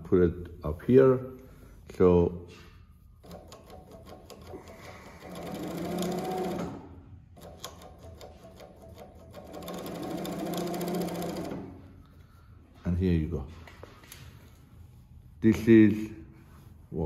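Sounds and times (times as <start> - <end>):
sewing machine stitching: 3.2 - 11.8.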